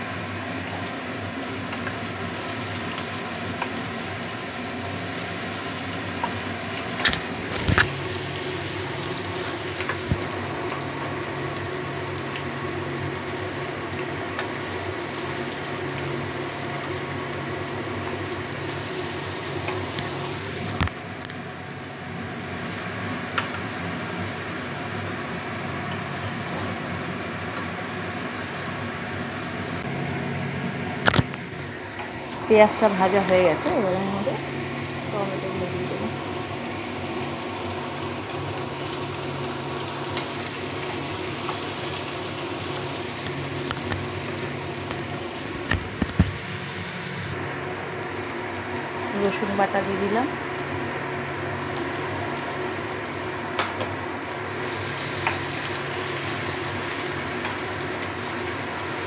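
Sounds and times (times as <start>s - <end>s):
onions sizzling in hot oil: 0.0s - 59.0s.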